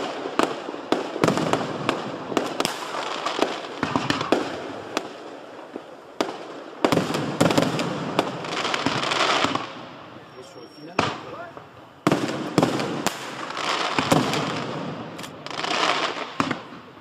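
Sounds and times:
firework shells bursting: 10.9 - 16.9.

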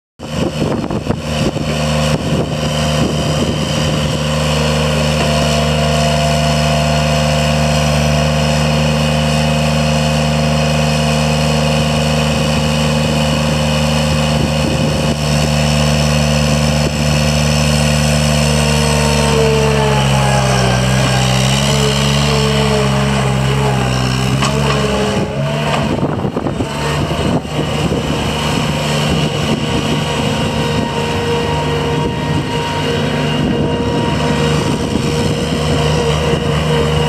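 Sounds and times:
diesel engine running: 0.2 - 37.0
thin whine: 0.7 - 37.0
clanks: 24.2 - 26.8.

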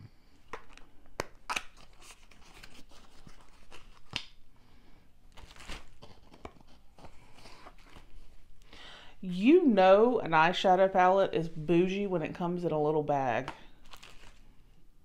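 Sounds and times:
wrapping tearing: 0.5 - 4.4, 5.3 - 8.3, 13.8 - 14.5.

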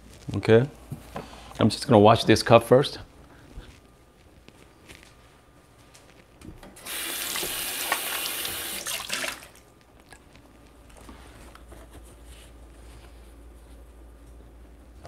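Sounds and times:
tap water running into sink: 6.8 - 9.6.

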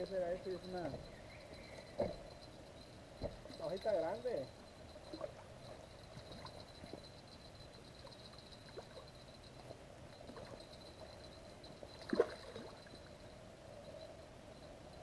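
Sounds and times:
river water lapping at bank: 11.8 - 13.2.

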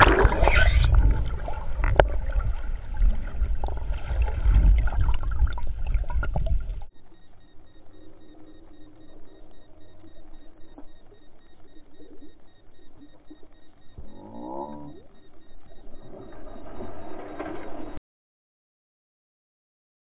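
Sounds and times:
low rumble on microphone: 0.0 - 6.9
faint repeating beep: 0.0 - 18.0.

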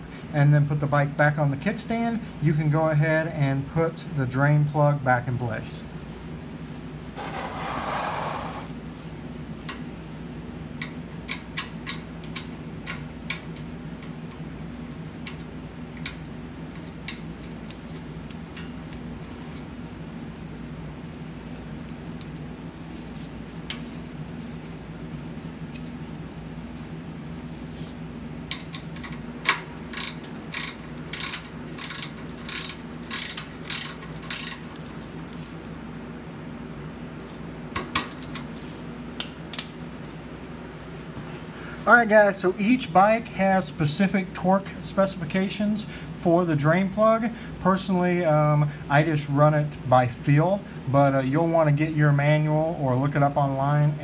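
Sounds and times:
steady low hum: 0.0 - 54.0
ratchet wrench clicking: 29.4 - 34.9.

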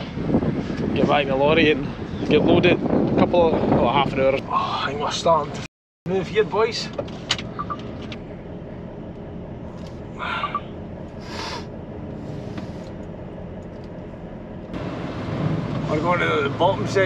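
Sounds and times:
lorry diesel engine running: 6.1 - 17.0.

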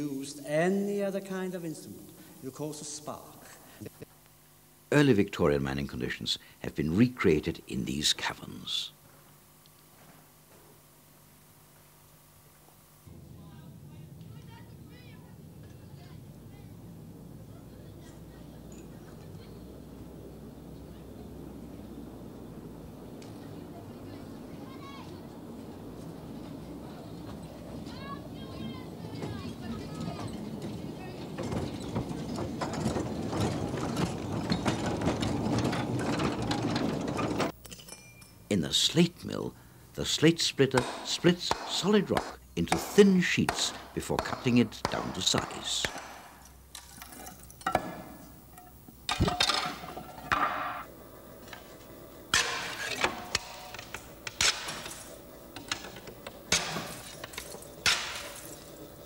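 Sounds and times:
steady rumble: 12.9 - 37.6, 48.0 - 59.0
sharp clicks over rails: 13.1 - 37.6, 40.7 - 59.0
train rattling and clanking: 13.1 - 37.6, 46.6 - 59.0.

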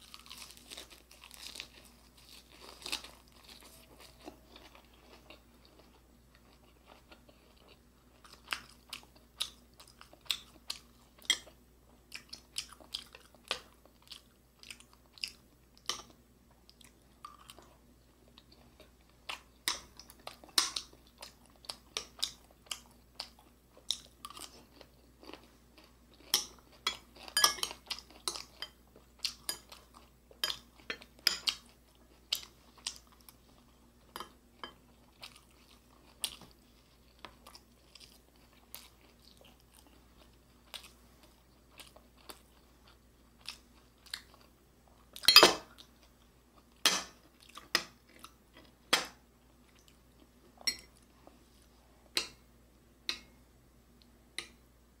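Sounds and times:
chewing and wet mouth sounds: 0.0 - 48.8, 49.4 - 52.4
chopsticks tapping dishes: 26.4 - 28.8, 50.6 - 50.9, 52.2 - 52.4, 53.1 - 53.4, 54.4 - 54.6.

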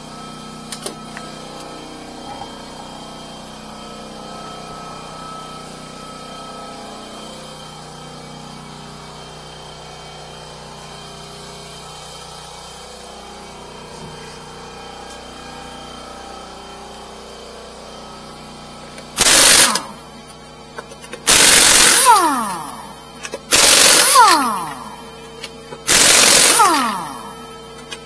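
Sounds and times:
tool spinning down whine: 18.0 - 28.0
impact wrench hammering: 19.1 - 28.0.

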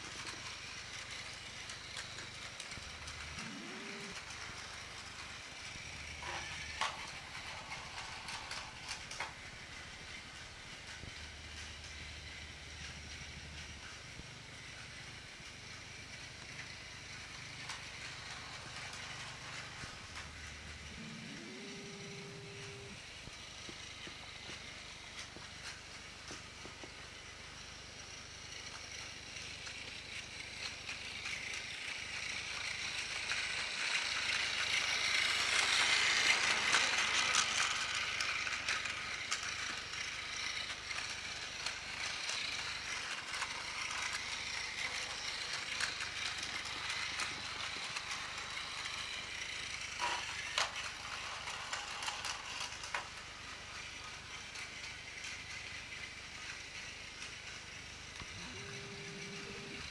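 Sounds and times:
wheels clattering over plastic track: 0.0 - 21.1, 23.2 - 59.9
toy train motor whirring: 0.0 - 59.9.

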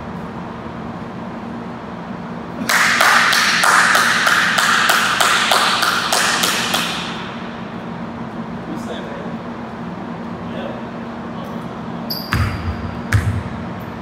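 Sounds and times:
low steady hum: 0.0 - 14.0
hands clapping in a gym: 2.6 - 7.4.

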